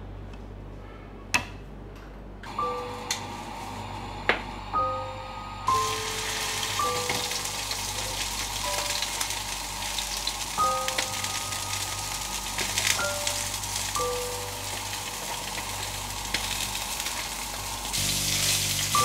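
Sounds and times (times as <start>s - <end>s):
fish sizzling on grill pan: 5.7s - 19.0s.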